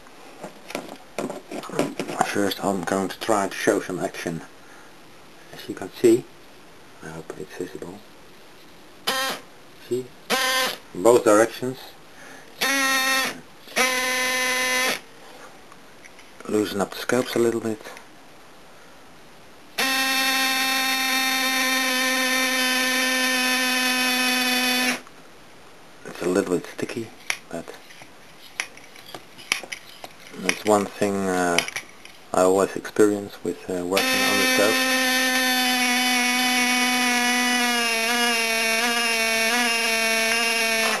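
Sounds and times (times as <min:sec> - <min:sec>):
electric air compressor whining: 0:19.8 - 0:25.0, 0:34.0 - 0:41.0.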